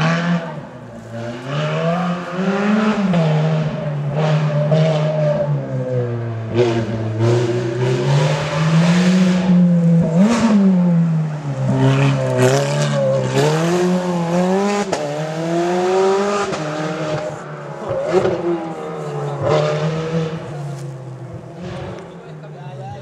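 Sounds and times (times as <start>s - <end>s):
rally car engine revving: 0.0s - 23.0s
engine crackles: 6.8s - 23.0s.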